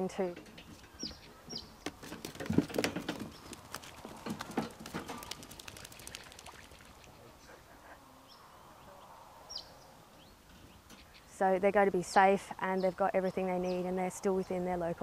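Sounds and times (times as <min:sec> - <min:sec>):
wire cage rattling: 0:01.8 - 0:06.6.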